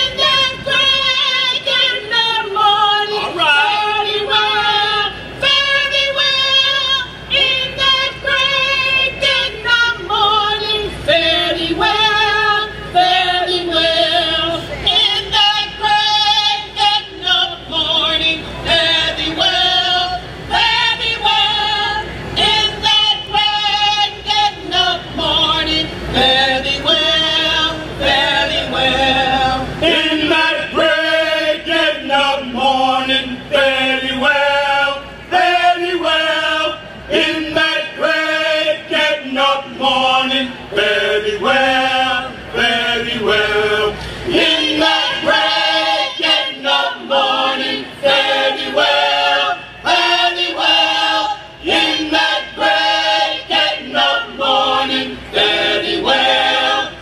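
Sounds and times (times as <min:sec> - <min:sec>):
choir singing a cappella: 0:00.0 - 0:57.0.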